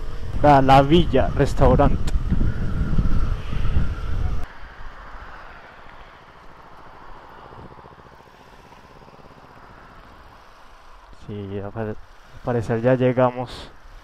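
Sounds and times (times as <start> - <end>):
wind rush: 0.0 - 12.8
motorcycle riding: 0.0 - 14.0
motorcycle engine idling: 6.0 - 13.2.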